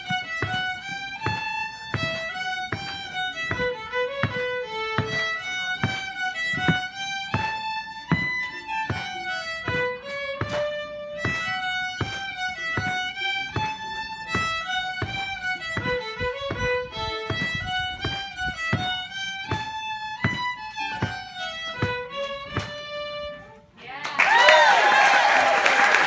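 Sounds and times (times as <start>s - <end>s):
two fiddles playing: 0.0s - 23.8s.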